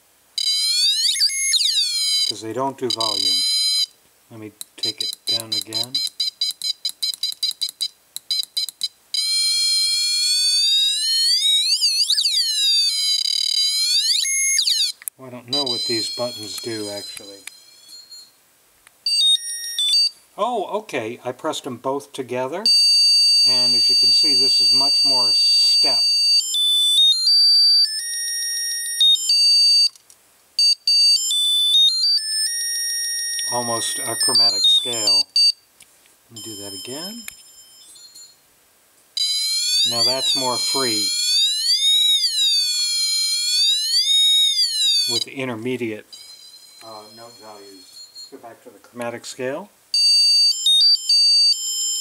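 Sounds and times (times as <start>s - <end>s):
stepped electronic tones: 0.4s - 3.9s, 4.8s - 18.4s, 22.7s - 28.0s, 33.3s - 35.6s, 36.3s - 38.4s, 39.2s - 49.1s
short buzzy beeps: 33.4s - 35.6s, 44.9s - 48.6s.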